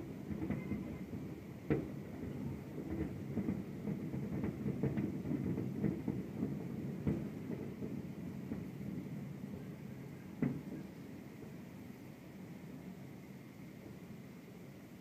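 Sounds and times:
fireworks rumbling: 0.0s - 9.8s, 10.4s - 11.6s.

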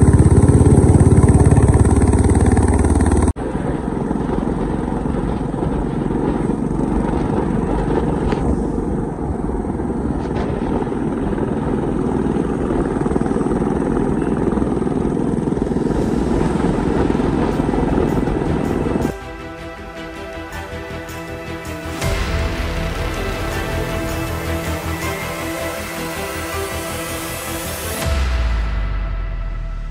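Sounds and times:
motorcycle engine rumble: 0.0s - 19.9s.

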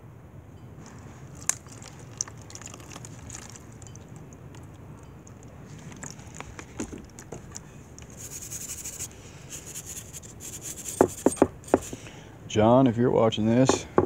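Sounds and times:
wire brush scrubbing rusty steel: 8.1s - 12.0s
sharp knocks: 10.9s - 12.0s, 13.7s - 14.0s.

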